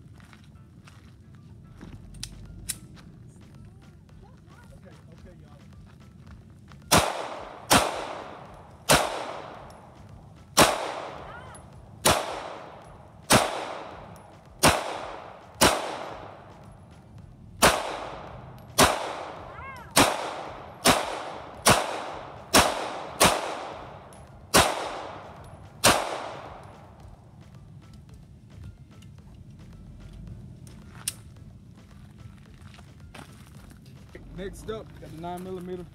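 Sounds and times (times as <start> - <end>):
pistol shots with echo: 6.9 - 16.8, 17.6 - 27.0.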